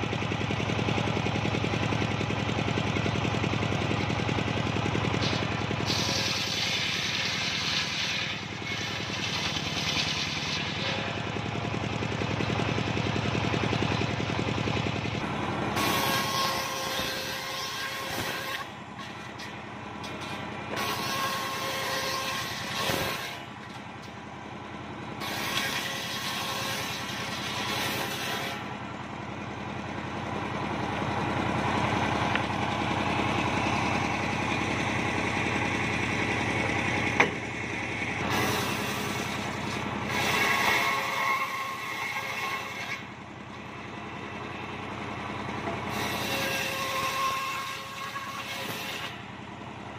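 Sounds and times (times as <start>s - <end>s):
engine hum: 0.0s - 17.3s, 18.6s - 21.6s, 22.3s - 25.7s, 27.0s - 40.7s, 43.0s - 46.2s
saw blade cutting wood: 5.0s - 11.5s, 15.3s - 24.2s, 25.2s - 28.8s, 37.1s - 43.2s, 45.6s - 49.3s.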